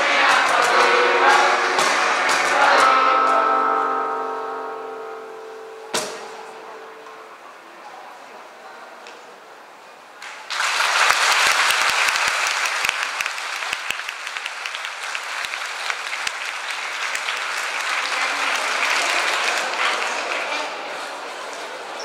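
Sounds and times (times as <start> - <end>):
audience applauding: 10.2 - 21.3.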